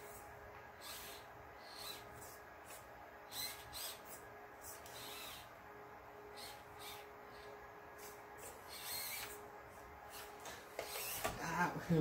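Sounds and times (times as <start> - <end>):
steady low hum: 0.0 - 12.0
electric motor whirring: 0.8 - 5.5, 6.2 - 9.4, 10.1 - 11.4.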